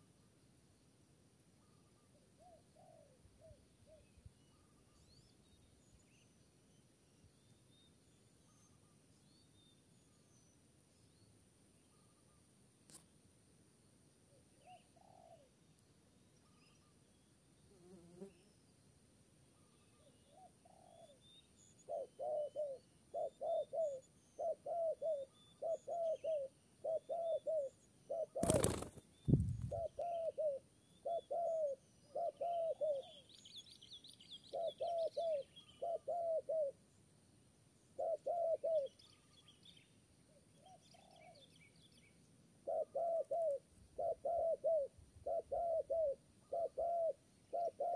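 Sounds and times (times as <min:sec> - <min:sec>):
small birds chirping: 0:19.6 - 0:37.2
doves cooing: 0:21.9 - 0:29.0, 0:29.6 - 0:33.2, 0:34.5 - 0:36.8, 0:38.0 - 0:38.9, 0:42.6 - 0:47.9
wings flapping: 0:28.4 - 0:29.8.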